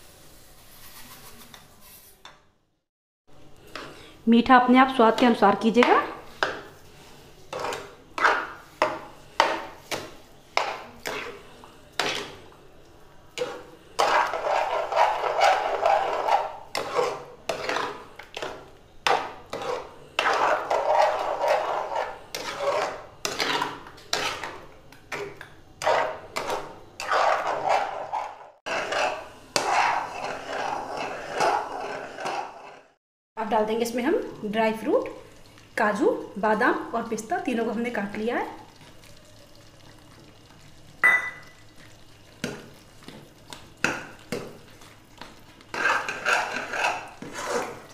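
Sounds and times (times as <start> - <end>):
metal spoon scraping a metal pan: 7.5 - 9.5, 13.4 - 24.6, 25.8 - 33.0, 45.7 - 47.9.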